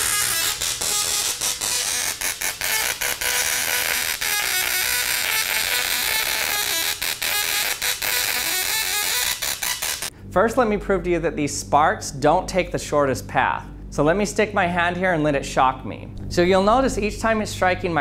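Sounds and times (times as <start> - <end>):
tesla coil spark buzzing: 0.0 - 10.2.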